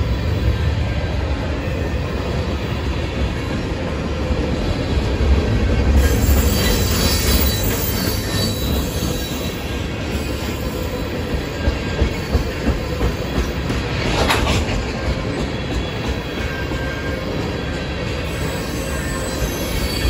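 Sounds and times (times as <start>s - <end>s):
train wheels rumbling on rail: 0.0s - 20.0s
high wheel squeal: 6.0s - 13.4s, 15.9s - 20.0s.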